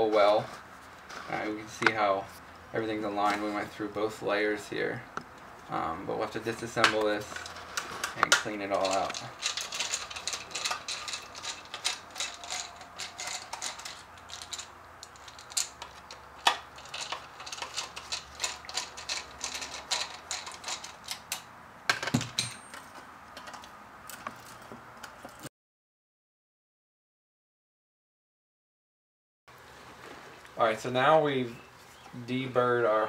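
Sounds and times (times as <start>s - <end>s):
metal housing clattering: 6.7s - 22.9s
deburring tool scraping metal: 7.2s - 21.3s.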